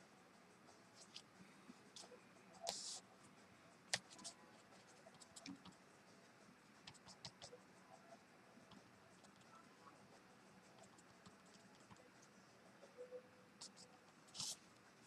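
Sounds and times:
pen scratching on paper: 0:02.6 - 0:03.1, 0:03.9 - 0:05.8, 0:13.6 - 0:14.7.

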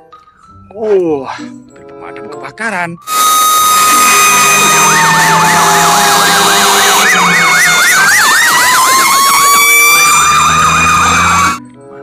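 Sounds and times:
fire truck sirens yelping: 0:03.0 - 0:11.6
wailing siren tone: 0:03.1 - 0:11.6.

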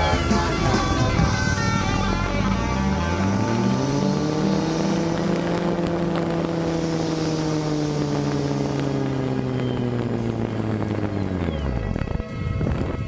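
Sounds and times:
model airplane motor running: 0:00.0 - 0:13.0.

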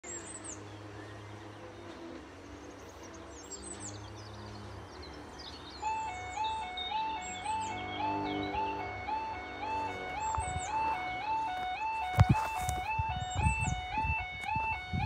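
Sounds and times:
birds chirping: 0:00.0 - 0:15.0
two-tone crossing alarm: 0:05.6 - 0:15.0.

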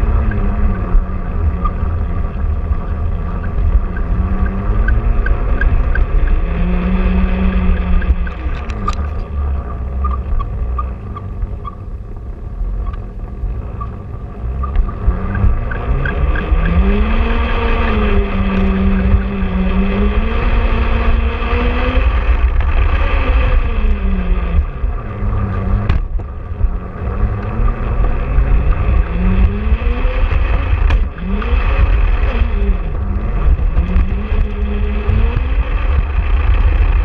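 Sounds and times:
wheels rumbling on track: 0:00.0 - 0:37.0
electric motor and gears whining: 0:12.7 - 0:37.0.

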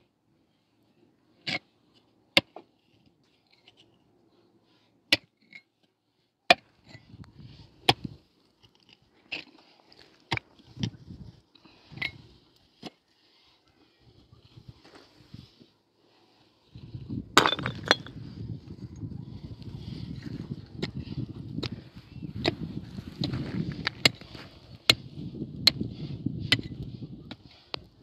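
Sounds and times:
earth and stones scraping and rattling: 0:06.8 - 0:12.9, 0:16.7 - 0:19.1, 0:19.7 - 0:27.8
hand pick striking stony soil: 0:17.4 - 0:18.2, 0:22.4 - 0:27.5.

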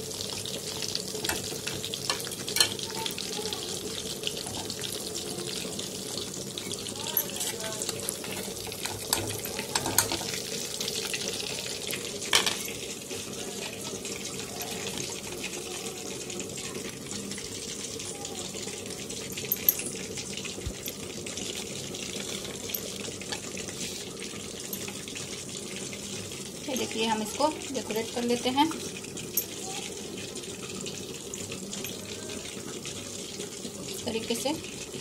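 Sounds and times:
oil sizzling in a frying pan: 0:00.0 - 0:35.0.

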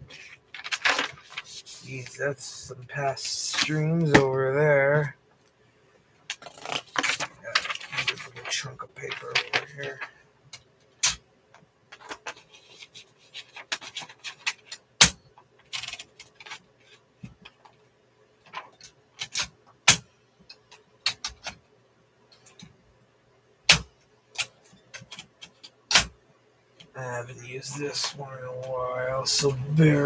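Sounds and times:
paper rustle: 0:00.1 - 0:02.1, 0:06.3 - 0:10.1, 0:11.9 - 0:14.7
typewriter clicks and knocks: 0:23.7 - 0:26.1.

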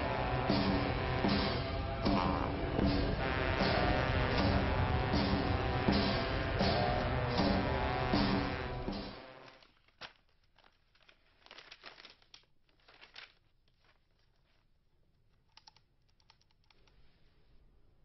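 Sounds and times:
music: 0:00.0 - 0:09.6
paper rustling on wooden table: 0:09.4 - 0:14.8.

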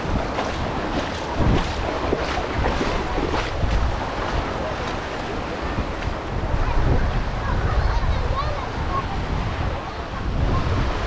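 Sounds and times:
small waves splashing: 0:00.0 - 0:11.0
wind noise on microphone: 0:00.0 - 0:11.0.

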